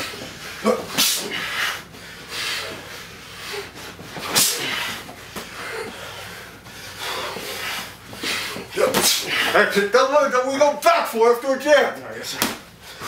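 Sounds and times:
boxing gloves thudding: 7.2s - 9.6s, 12.3s - 12.7s.

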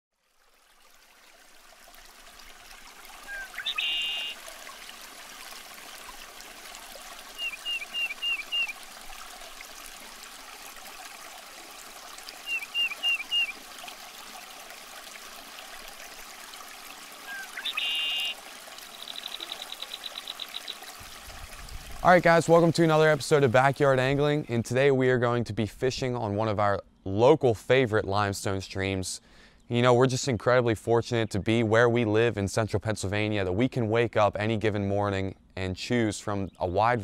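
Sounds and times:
stream water running over rocks: 0.2s - 25.1s
high chirping bird calls: 3.3s - 4.4s, 7.4s - 8.8s, 12.4s - 13.6s, 17.2s - 20.8s.

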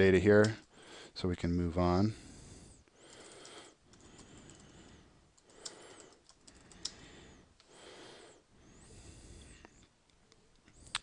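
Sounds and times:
typing on a keyboard: 3.1s - 4.8s, 5.4s - 7.0s
sharp clicks: 5.4s - 7.0s, 10.1s - 11.0s.

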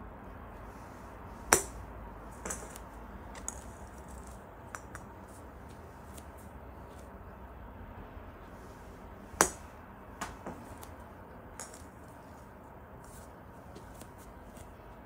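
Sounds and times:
golf club striking plastic ball: 1.5s - 1.8s, 2.4s - 5.2s, 9.4s - 10.9s.

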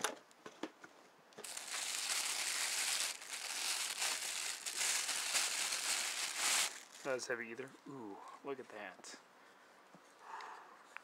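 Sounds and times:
plastic bag crinkling: 1.4s - 7.3s.

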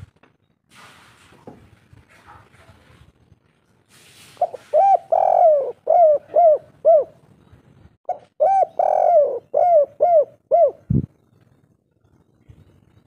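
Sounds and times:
dove cooing: 4.4s - 7.2s, 8.1s - 11.1s.

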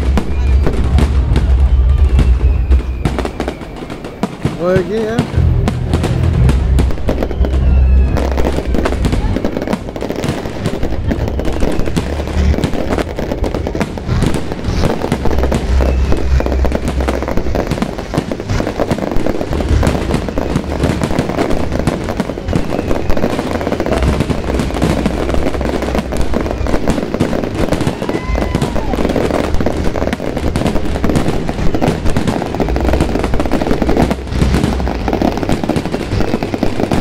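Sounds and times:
deep fireworks booms: 0.0s - 37.0s
fireworks bangs and crackles: 0.0s - 37.0s.

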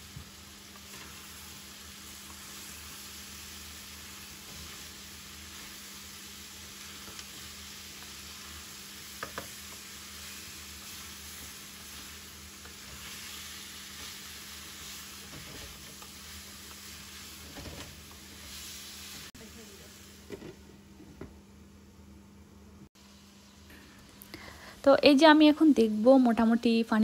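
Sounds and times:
food sizzling in a pan: 0.0s - 20.7s
wooden spatula knocking on pan: 9.2s - 9.5s.

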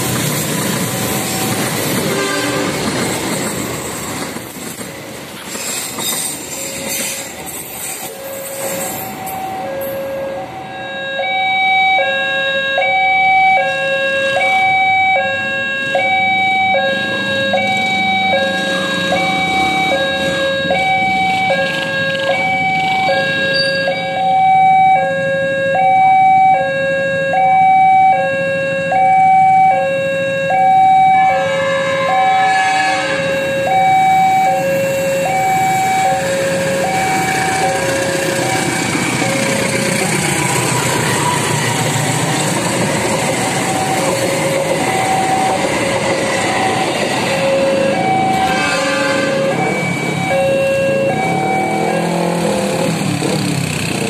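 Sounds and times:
approaching train rumble: 0.0s - 11.0s, 31.4s - 54.0s
level crossing two-tone alarm: 8.1s - 31.5s, 33.3s - 39.8s, 43.1s - 52.8s.

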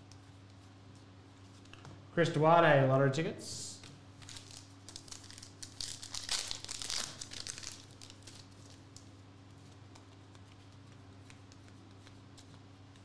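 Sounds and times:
foil wrapper crinkling and tearing: 4.1s - 9.1s
faint ticks of cards handled: 8.9s - 13.0s.

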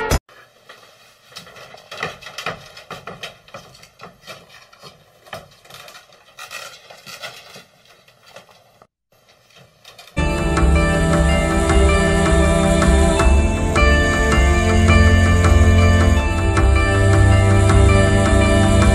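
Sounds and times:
cat claws scratching screen door: 1.4s - 8.7s
music: 10.2s - 18.9s.

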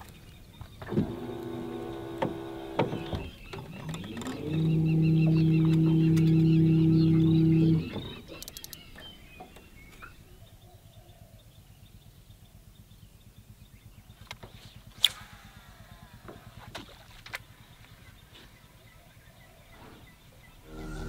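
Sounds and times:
boat motor throbbing: 0.6s - 9.9s, 20.6s - 21.0s.

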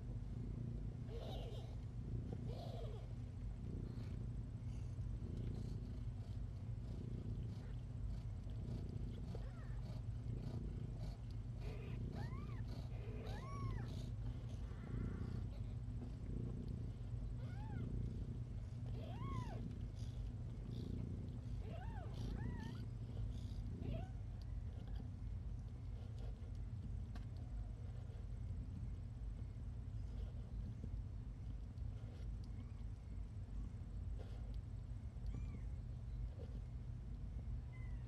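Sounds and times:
steady low hum: 0.0s - 38.0s
kittens mewing: 1.1s - 3.2s, 11.6s - 13.9s, 18.9s - 19.8s.

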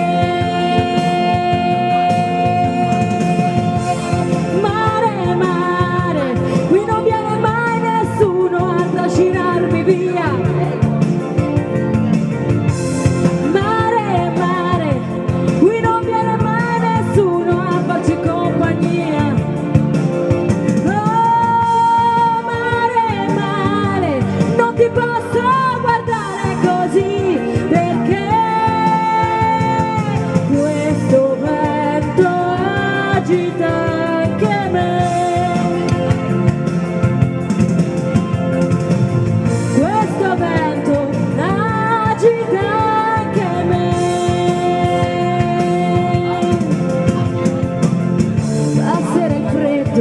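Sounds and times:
woman singing into a microphone: 0.0s - 11.9s, 12.6s - 36.6s, 39.4s - 50.0s
backing track: 0.0s - 50.0s.

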